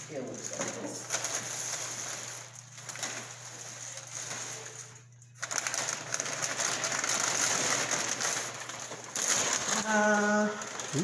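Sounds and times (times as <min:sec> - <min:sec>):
paper and plastic wrap crackling: 0:00.0 - 0:11.0.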